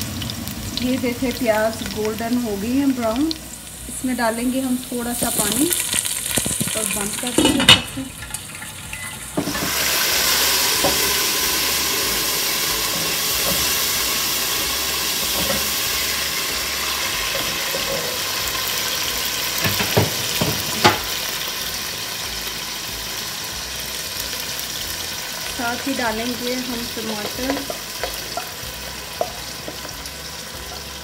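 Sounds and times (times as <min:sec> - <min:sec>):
onions sizzling in hot oil: 0:00.0 - 0:31.0
lid and spatula knocking pot: 0:06.5 - 0:08.0, 0:15.2 - 0:15.8, 0:19.6 - 0:21.1.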